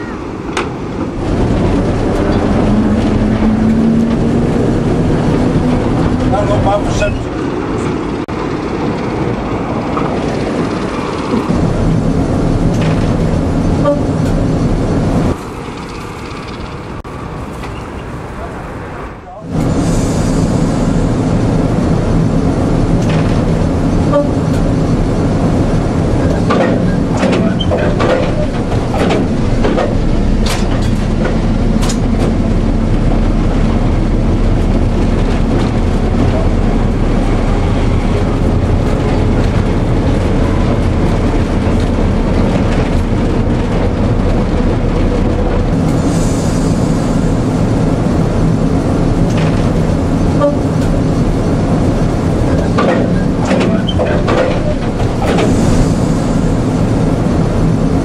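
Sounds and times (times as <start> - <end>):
diesel locomotive running: 0.0 - 58.0
sharp clanks and knocks: 23.0 - 23.5, 26.2 - 32.6, 49.2 - 49.8, 52.5 - 55.8.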